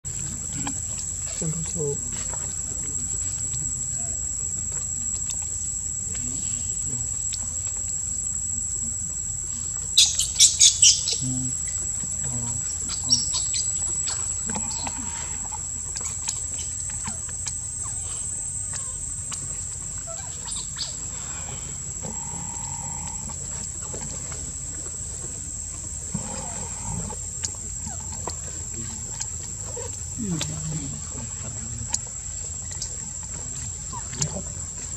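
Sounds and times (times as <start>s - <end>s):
insect chirps: 0.0s - 34.9s
high-pitched insect drone: 1.3s - 24.6s.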